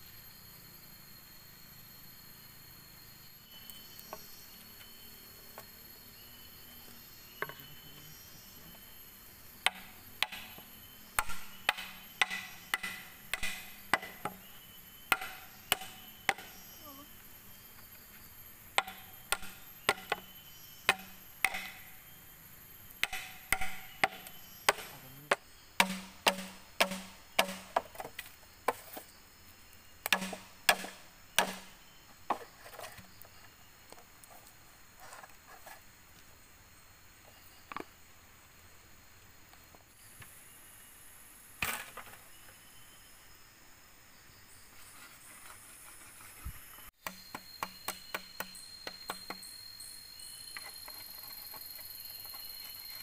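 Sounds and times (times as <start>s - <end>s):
bamboo being chopped: 9.6s - 14.5s, 15.1s - 16.7s, 18.8s - 21.9s, 23.0s - 29.1s, 30.0s - 33.1s, 47.0s - 49.4s.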